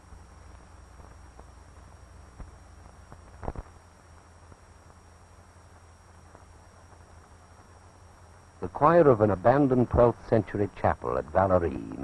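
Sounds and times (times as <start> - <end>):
film soundtrack hiss: 0.0 - 12.0
low hum: 0.0 - 12.0
clicks and crackle: 0.2 - 5.0.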